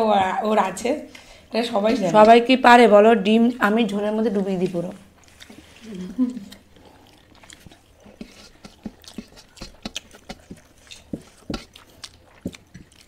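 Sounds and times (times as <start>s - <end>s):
food being mixed on plates: 1.6s - 13.0s
chewing clicks and smacks: 6.4s - 13.0s.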